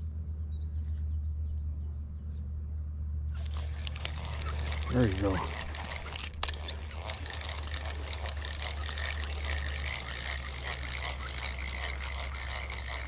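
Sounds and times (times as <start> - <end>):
spinning reel gears whirring: 3.4 - 13.0.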